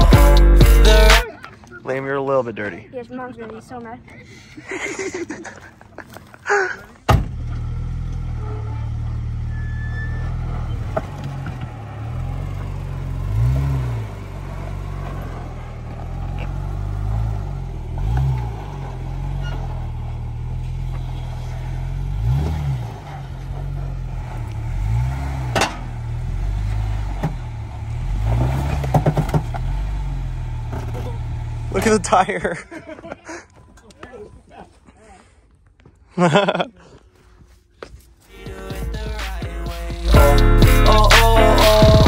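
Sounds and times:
engine revving at low revs: 7.2s - 32.2s.

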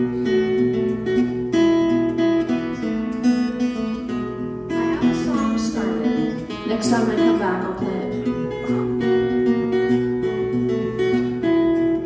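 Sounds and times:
second guitar: 0.0s - 12.0s
tenor guitar picked and strummed: 0.0s - 12.0s.

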